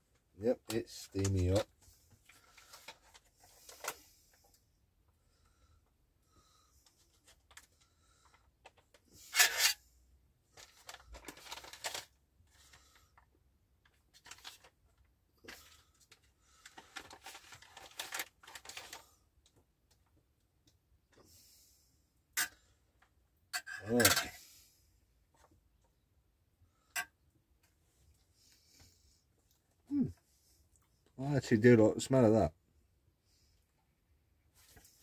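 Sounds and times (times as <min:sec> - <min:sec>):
foil pouch crinkling: 0:10.5 - 0:13.0, 0:14.1 - 0:14.8, 0:16.5 - 0:19.2.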